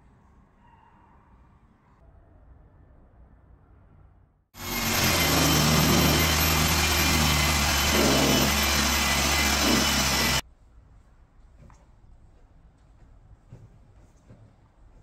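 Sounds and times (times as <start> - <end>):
motor-driven machine running: 4.6 - 10.4.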